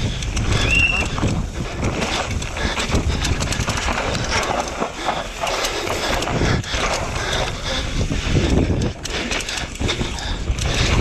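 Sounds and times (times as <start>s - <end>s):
bike rattling and knocking: 0.0s - 11.0s
wind rush on microphone: 0.0s - 11.0s
tyres scrabbling over dirt: 0.2s - 7.6s.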